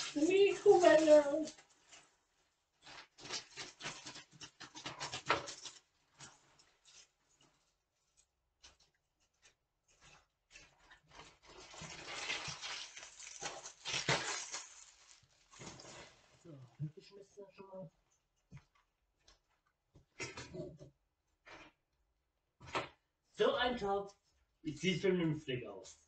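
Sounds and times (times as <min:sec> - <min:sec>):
plastic packaging crinkling: 0:00.0 - 0:16.5.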